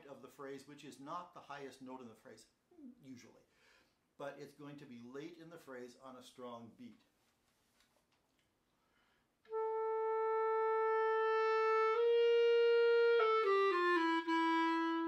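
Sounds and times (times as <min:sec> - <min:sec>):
clarinet playing slow phrase: 0:09.5 - 0:15.0.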